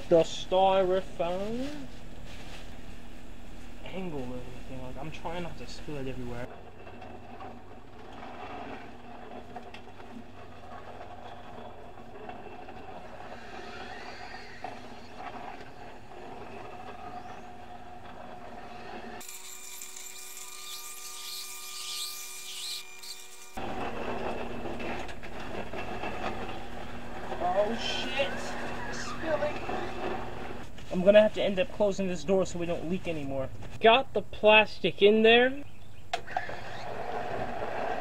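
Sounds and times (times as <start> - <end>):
rotating drum mechanical hum: 0.0 - 19.2, 23.6 - 34.6.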